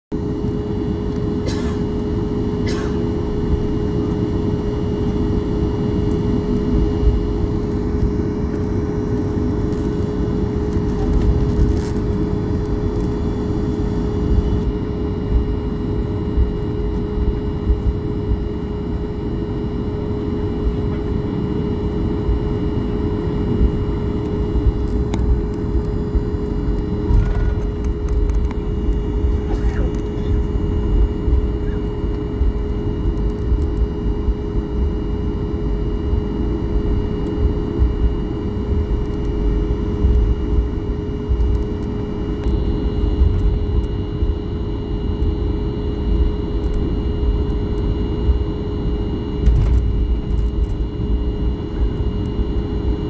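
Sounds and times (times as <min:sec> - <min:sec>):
jet engines humming: 0:00.1 - 0:53.0
wheels rumbling on taxiway: 0:04.8 - 0:15.5, 0:22.9 - 0:34.8.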